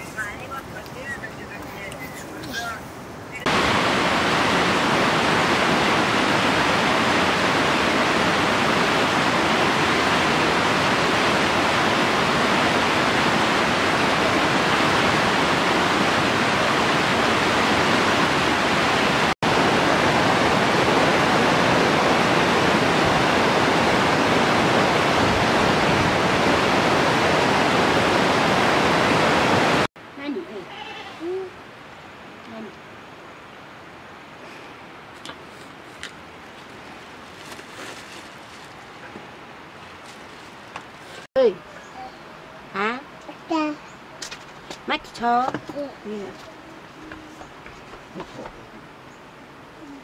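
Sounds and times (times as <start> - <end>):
stream rushing over rocks: 0.0 - 29.9.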